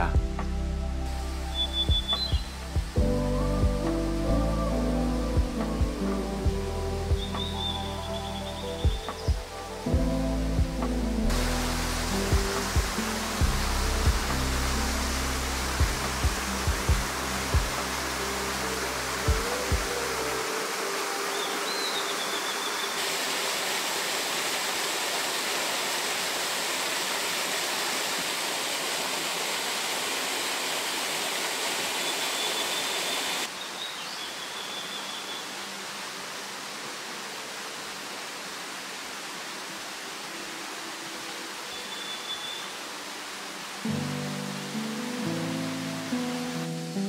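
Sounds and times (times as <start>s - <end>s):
stream rushing over rocks: 0.0s - 47.0s
bird high whistles: 1.6s - 2.6s, 41.7s - 42.7s.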